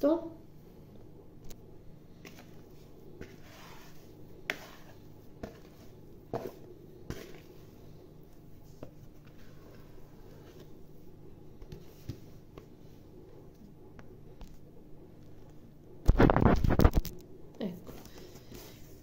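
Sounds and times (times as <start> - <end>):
scraping dough from bowl: 2.2 - 7.8.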